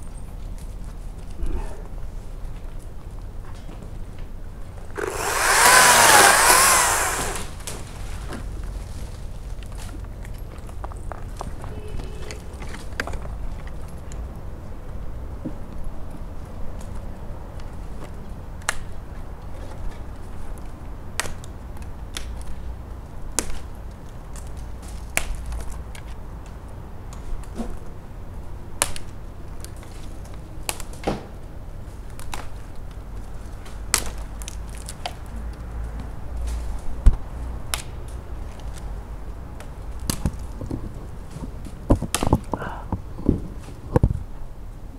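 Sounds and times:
branches snapping and knocking: 4.9s - 8.0s, 33.6s - 35.2s, 39.6s - 40.6s.

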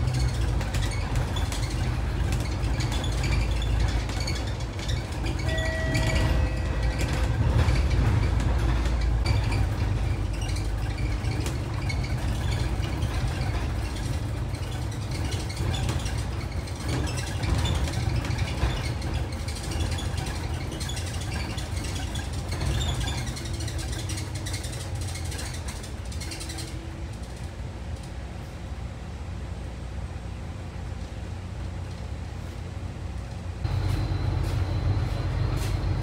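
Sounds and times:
rattles: 0.0s - 28.2s
bus engine rumbling: 0.0s - 36.0s
short beep: 5.5s - 7.0s, 33.7s - 36.0s.

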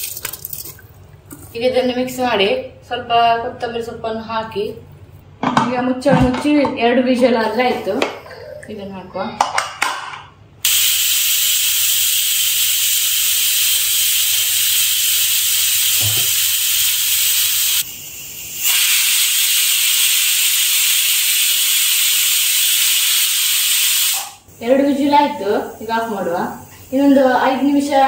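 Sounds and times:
pressure cooker whistling: 10.6s - 24.4s.

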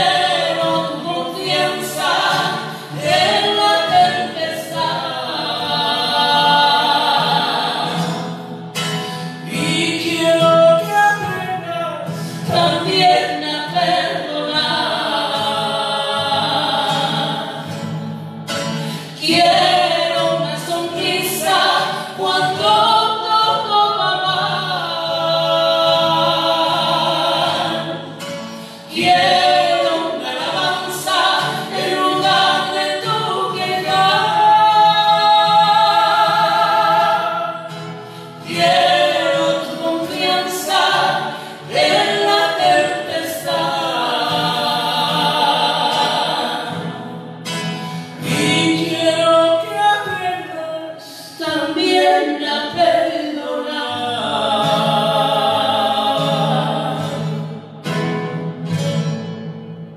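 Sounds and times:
woman singing worship song: 0.0s - 8.4s, 9.4s - 11.4s, 12.1s - 17.9s, 18.9s - 47.1s, 48.2s - 57.3s
acoustic guitar: 0.0s - 59.9s.

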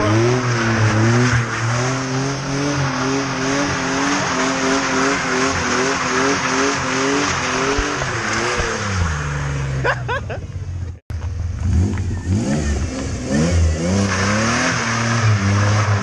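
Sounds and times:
spinning tires squealing: 0.0s - 9.9s, 11.7s - 16.0s
car engine revving high: 0.0s - 10.0s, 11.5s - 16.0s.

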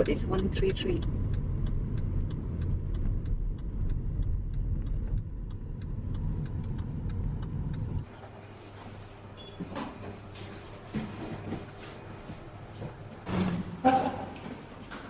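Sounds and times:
light ticking: 0.0s - 8.1s
low vehicle rumble: 0.0s - 8.5s.

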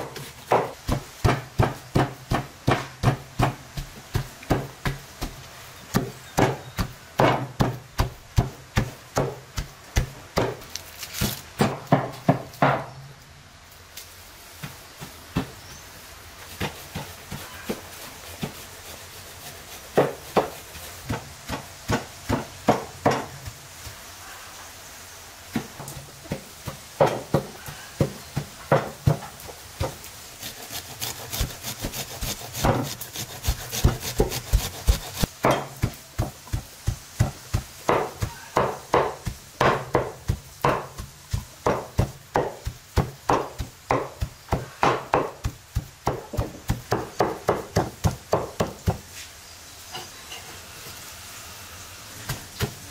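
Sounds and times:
cleaver chopping on wooden board: 0.1s - 10.8s, 19.9s - 23.4s, 25.6s - 49.0s
food grated on metal grater: 29.9s - 35.3s.

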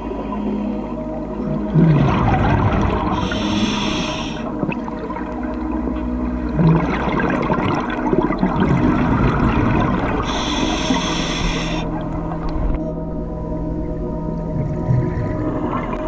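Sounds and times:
exhaled bubbles gurgling: 1.3s - 12.9s
regulator inhalation hiss: 3.2s - 4.5s, 10.3s - 11.9s.

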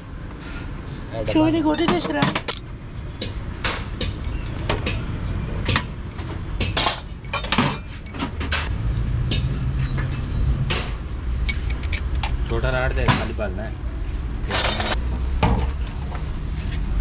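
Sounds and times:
metal bolts clinking: 3.6s - 8.7s, 9.3s - 13.7s, 14.5s - 15.0s.

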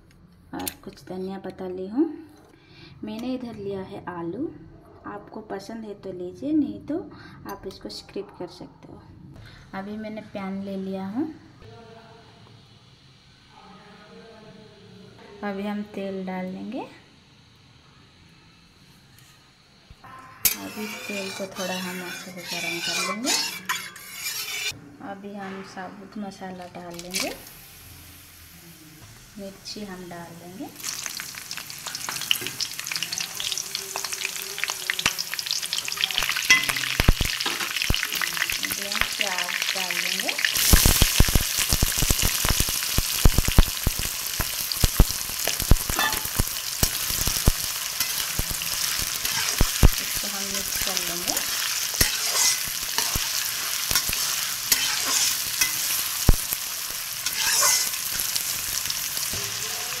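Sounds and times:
chillies sizzling in hot oil: 15.4s - 24.8s, 26.2s - 60.0s
metal spoon scraping a pan: 20.4s - 24.8s, 26.8s - 27.6s, 31.8s - 42.5s, 44.8s - 59.6s.

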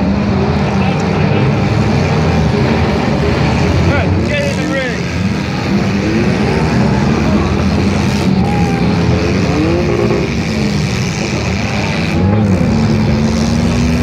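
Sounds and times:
car engines revving: 0.0s - 14.0s.

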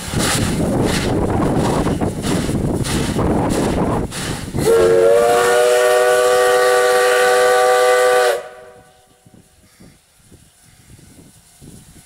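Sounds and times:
steam hiss: 0.0s - 12.0s
steam locomotive whistle: 4.6s - 9.2s.

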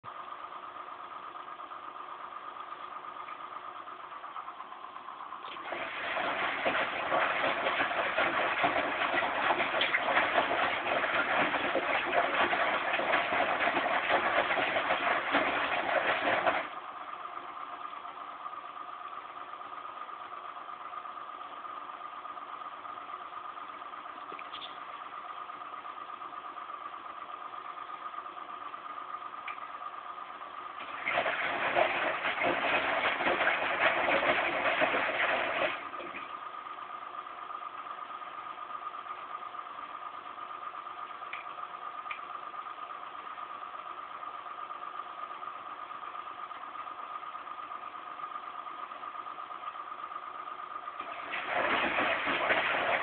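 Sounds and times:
washing machine humming: 0.0s - 53.0s
water rushing into machine: 5.5s - 16.8s, 30.8s - 36.4s, 51.0s - 53.0s.

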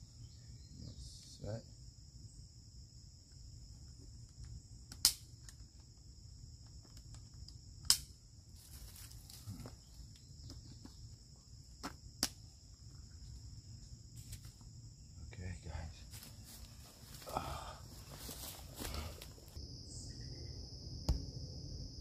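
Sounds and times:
high-pitched insect chorus: 0.0s - 22.0s
soft rustling: 18.0s - 19.6s.

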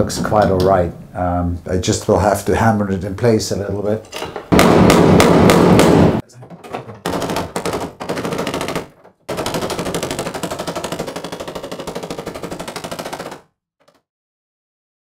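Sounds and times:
hammer tapping sheet metal: 4.5s - 13.4s.

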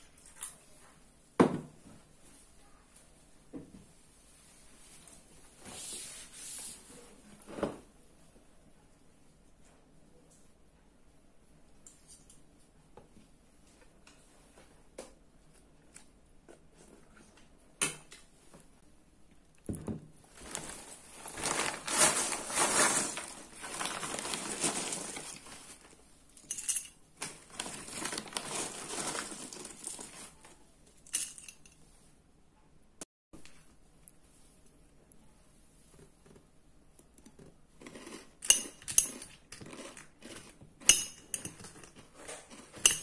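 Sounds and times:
rustling and crinkling: 19.7s - 32.2s.

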